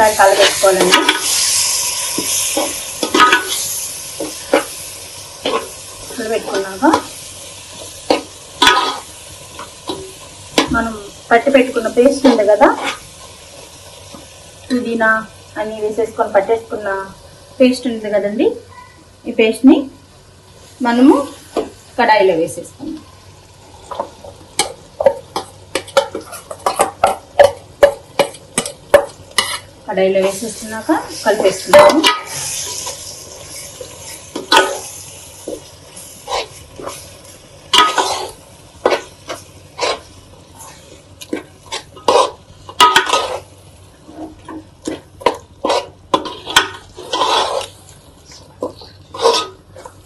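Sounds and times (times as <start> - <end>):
spoon scraping thick paste: 45.6 - 47.8.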